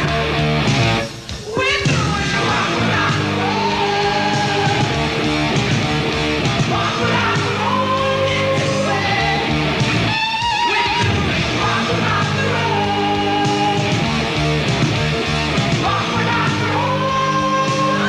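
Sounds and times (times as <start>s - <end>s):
heavy rock band playing: 0.0s - 18.0s
man singing long notes: 15.8s - 18.0s.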